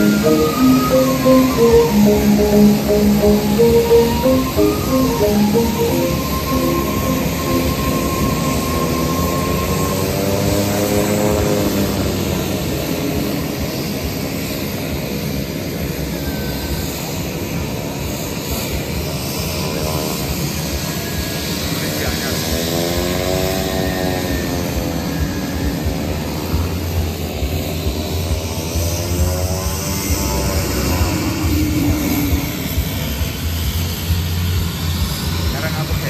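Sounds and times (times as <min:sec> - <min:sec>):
turboprop engine droning: 0:00.0 - 0:13.0.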